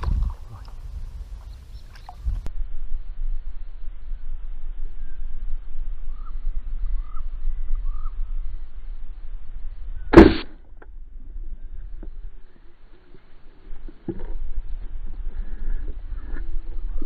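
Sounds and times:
crossbow string cracking: 10.2 - 10.6.

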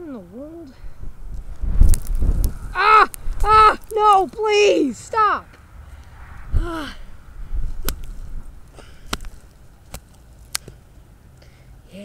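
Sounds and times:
person crying out: 2.7 - 4.0, 6.6 - 7.1
sharp clicks: 7.8 - 10.8.

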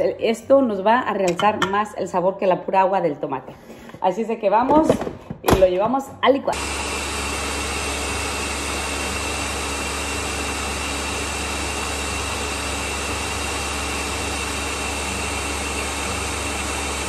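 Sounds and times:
blender motor hum with whine: 6.5 - 17.0.

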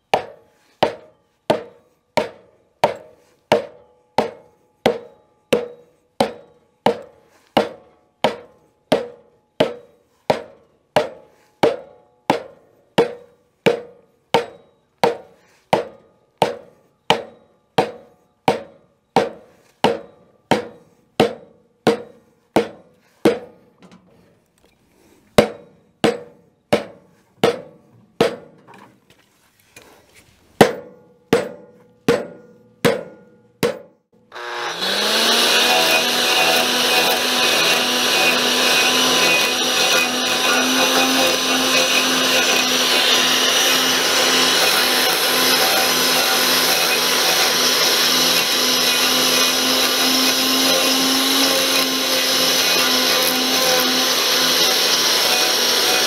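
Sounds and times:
axe chopping log: 0.1 - 23.5
angle grinder carving wood: 34.3 - 56.0.

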